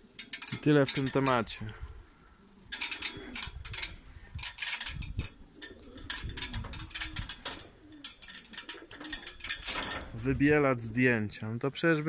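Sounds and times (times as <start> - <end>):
pigeons cooing: 0.0 - 10.2
scratchy clicks and rustles: 2.7 - 10.2.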